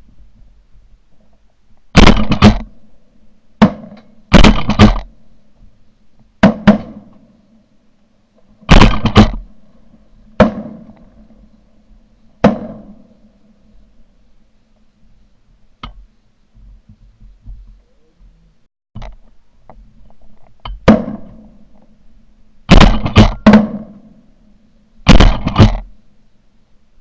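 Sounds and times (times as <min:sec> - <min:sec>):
shotgun shots: 0:02.0 - 0:02.8, 0:03.6 - 0:05.1, 0:06.4 - 0:07.1, 0:08.7 - 0:09.5, 0:10.4 - 0:11.0, 0:12.4 - 0:13.1, 0:20.8 - 0:21.4, 0:22.7 - 0:24.1, 0:25.1 - 0:25.9.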